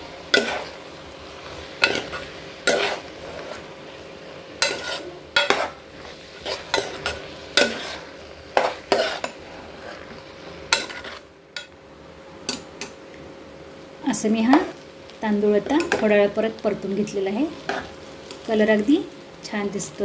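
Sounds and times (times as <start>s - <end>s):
faint sizzle: 0.0s - 20.0s
metal spoon scraping a pan: 0.3s - 0.8s, 1.8s - 3.7s, 4.6s - 11.7s.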